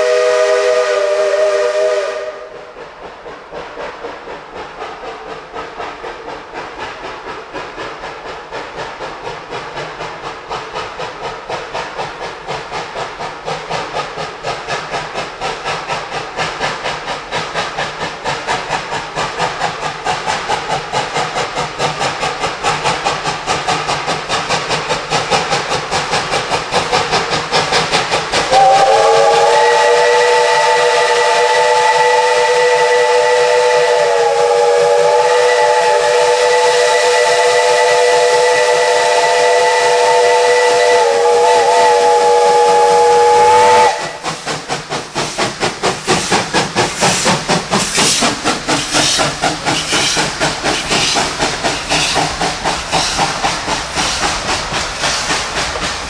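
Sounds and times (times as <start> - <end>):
steam chime whistle: 0.0 - 2.5, 28.5 - 44.2
steam locomotive chuffing: 0.0 - 56.0.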